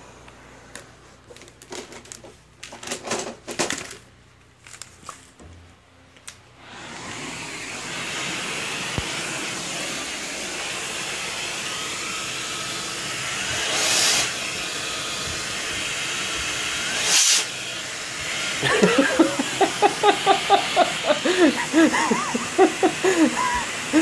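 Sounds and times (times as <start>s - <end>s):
handheld vacuum cleaner running: 6.6s - 24.0s.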